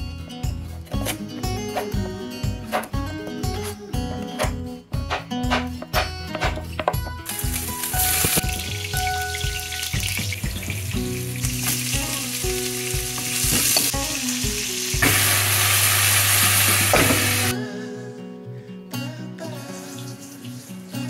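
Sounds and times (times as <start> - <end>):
vegetables stir-frying in wok: 7.2 - 17.5
food sizzling in hot oil: 7.3 - 17.5.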